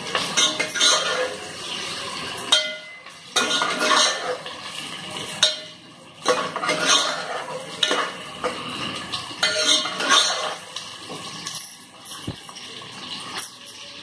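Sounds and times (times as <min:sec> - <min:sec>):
spoon scraping a metal pot: 0:00.1 - 0:01.5, 0:02.4 - 0:04.6, 0:05.2 - 0:10.7.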